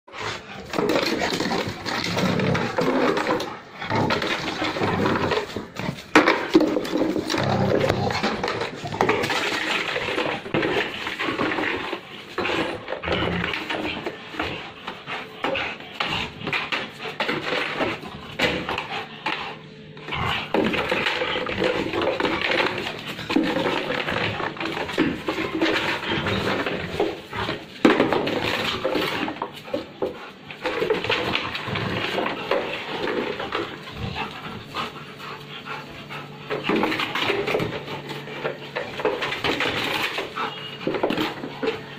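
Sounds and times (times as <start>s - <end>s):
dog growling: 0.1s - 29.9s, 30.6s - 41.9s
dog panting: 13.4s - 21.1s, 32.2s - 41.9s.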